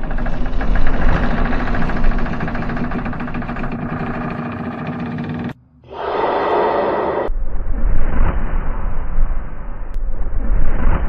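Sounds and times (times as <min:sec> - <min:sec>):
dense low rumble with rattle: 0:00.0 - 0:05.8.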